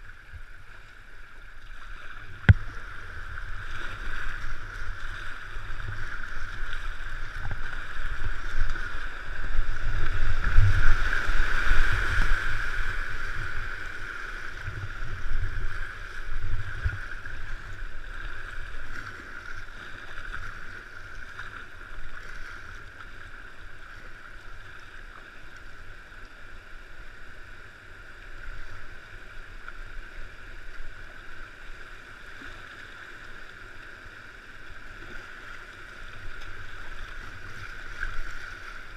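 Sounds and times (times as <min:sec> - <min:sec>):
wind rumbling on microphone: 0:00.0 - 0:22.4.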